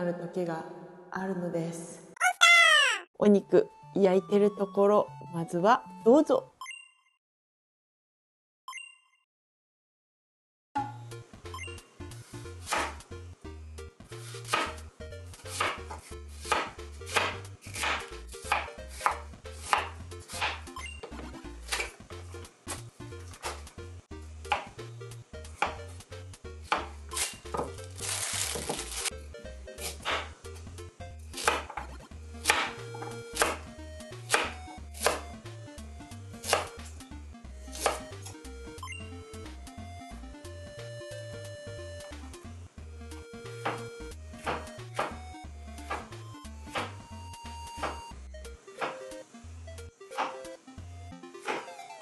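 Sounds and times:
knife chopping onion on board: 0:12.6 - 0:13.0, 0:14.1 - 0:20.7, 0:21.6 - 0:22.0, 0:22.7 - 0:23.7, 0:24.4 - 0:24.8, 0:25.4 - 0:26.0, 0:26.6 - 0:27.7, 0:29.8 - 0:30.4, 0:31.3 - 0:35.4, 0:36.4 - 0:36.9, 0:37.7 - 0:38.4, 0:43.5 - 0:45.2, 0:45.8 - 0:47.0, 0:47.7 - 0:48.1, 0:48.8 - 0:49.0, 0:50.2 - 0:50.4, 0:51.4 - 0:51.7
knife slicing carrot: 0:14.1 - 0:14.8, 0:15.4 - 0:20.7, 0:26.6 - 0:29.1, 0:29.8 - 0:30.4, 0:34.3 - 0:35.2, 0:37.7 - 0:38.1.

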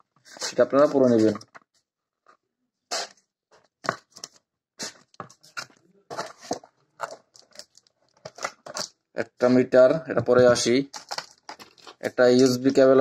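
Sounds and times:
paper and packaging crinkling: 0:03.9 - 0:09.0, 0:10.8 - 0:13.0.

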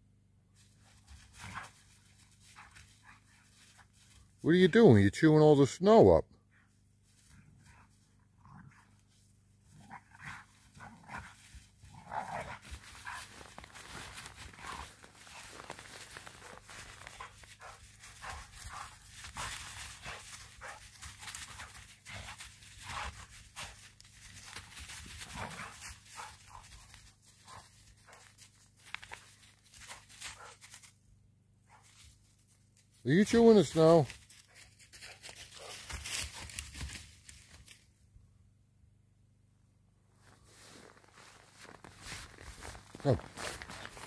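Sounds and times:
scuffling in leaves and snow: 0:00.6 - 0:04.4, 0:09.0 - 0:31.0, 0:31.8 - 0:37.9, 0:40.2 - 0:44.0
dogs growling: 0:09.6 - 0:23.7.

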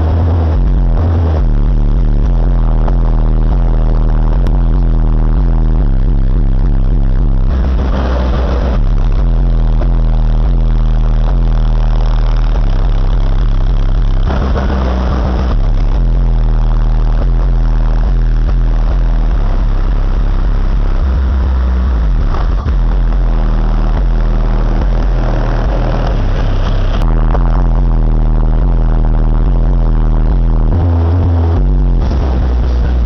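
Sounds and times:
loud bass music from subwoofers: 0:00.0 - 0:33.0.

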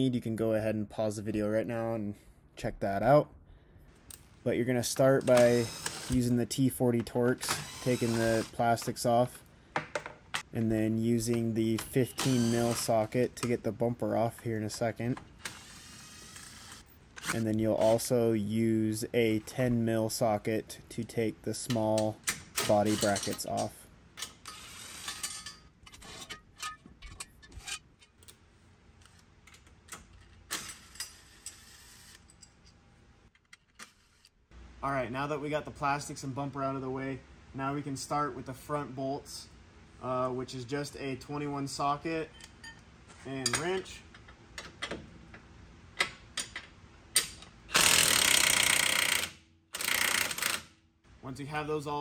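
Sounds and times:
cordless drill driver: 0:05.2 - 0:06.2, 0:07.5 - 0:08.6, 0:47.7 - 0:50.7.

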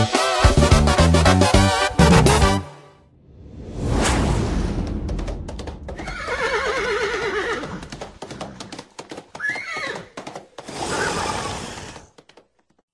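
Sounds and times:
whoosh: 0:03.1 - 0:06.0
galloping hoofbeats: 0:05.0 - 0:12.8
horse whinnying: 0:06.0 - 0:08.6, 0:09.4 - 0:12.1.

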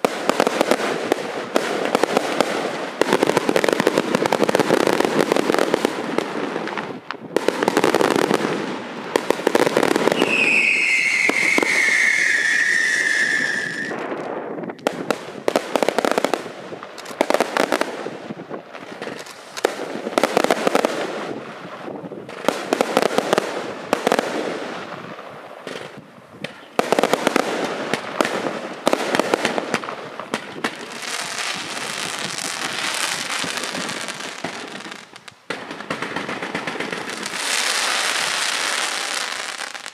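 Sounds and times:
fireworks bangs and crackling: 0:00.0 - 0:39.9
falling firework whistle: 0:09.6 - 0:14.3.

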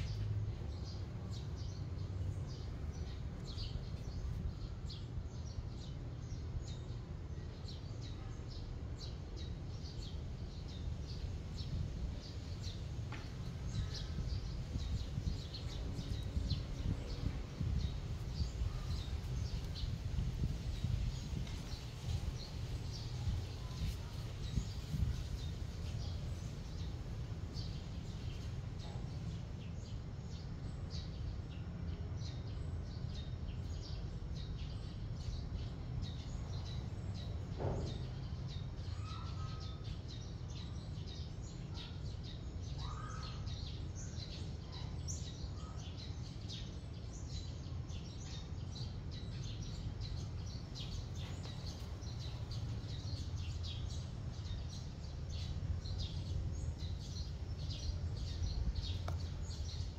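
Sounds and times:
steady low rumble: 0:00.0 - 0:07.4, 0:09.9 - 0:38.6, 0:48.7 - 0:59.9
small birds chirping: 0:00.0 - 0:59.9.

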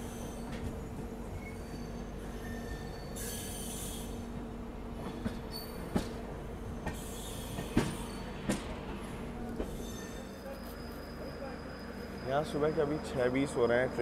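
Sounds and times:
train rolling with steady hum: 0:00.0 - 0:14.0.

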